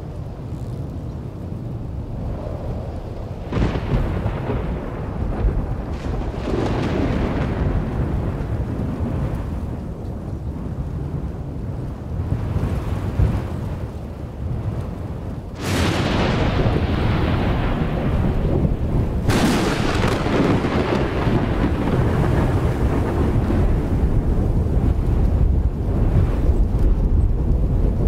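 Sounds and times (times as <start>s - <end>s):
rain: 0.0s - 28.0s
low rolling thunder: 1.2s - 28.0s
sharp thunderclap: 3.5s - 9.8s, 15.6s - 28.0s.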